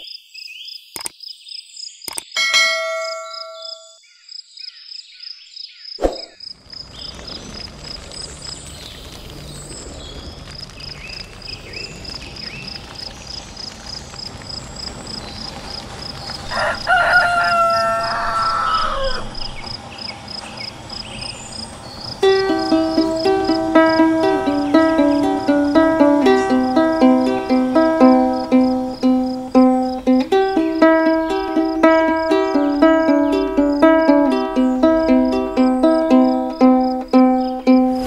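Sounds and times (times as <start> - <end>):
insect chirping: 3.0 - 38.0
rooster crowing: 16.4 - 19.6.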